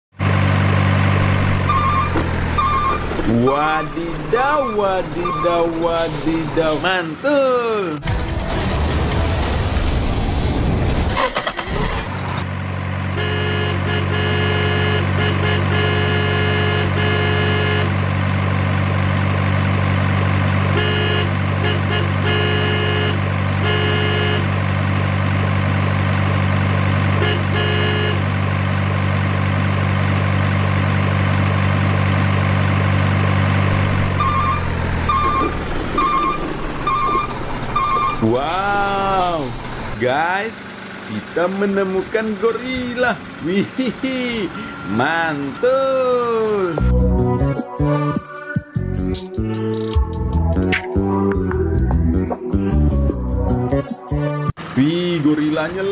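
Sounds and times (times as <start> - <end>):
truck engine idling: 0.2 - 10.1, 11.2 - 48.1
multi-tone horn blasts: 1.6 - 6.8, 13.2 - 18.0, 20.7 - 24.5, 27.1 - 28.3
repeating high beep: 34.2 - 38.2.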